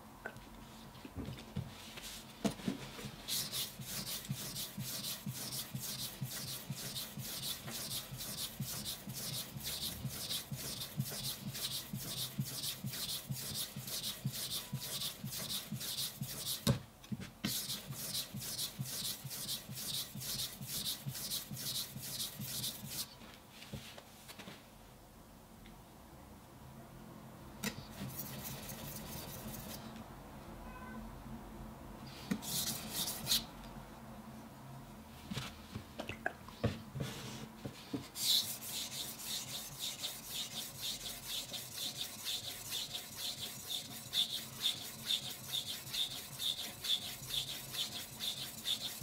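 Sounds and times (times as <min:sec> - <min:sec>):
knife scraping on whetstone: 0:38.2 - 0:49.0.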